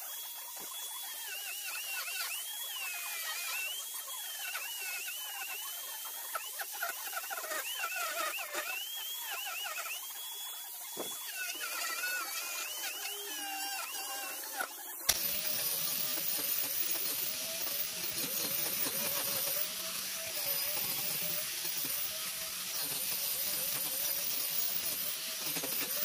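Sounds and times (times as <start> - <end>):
angle grinder motor whine: 0.0 - 26.0
wood being ground hiss: 0.0 - 26.0.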